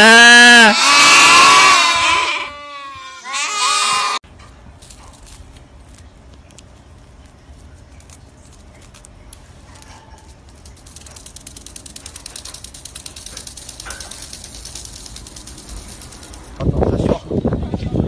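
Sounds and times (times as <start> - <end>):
fast rattle of clicks: 8.8 - 16.7.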